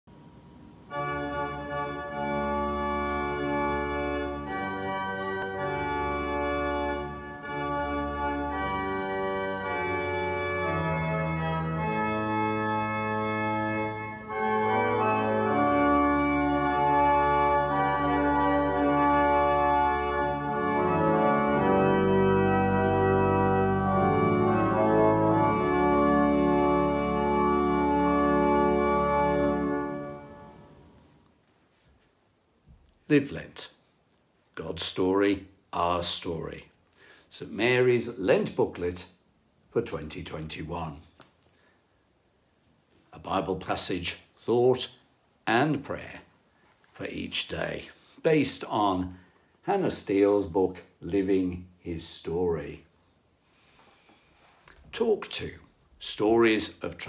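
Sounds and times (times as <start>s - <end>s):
organ playing sustained chords: 0.2s - 31.2s.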